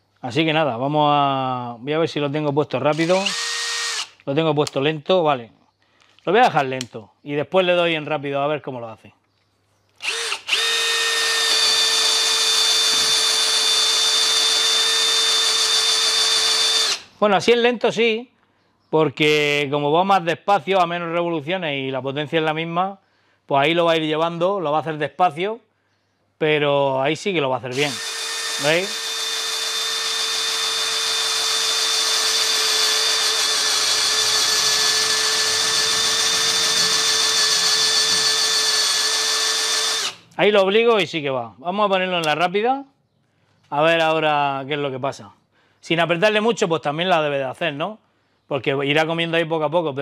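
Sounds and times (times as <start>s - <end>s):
cordless drill boring into wood: 2.8s - 4.2s, 10.0s - 17.2s, 27.7s - 40.4s.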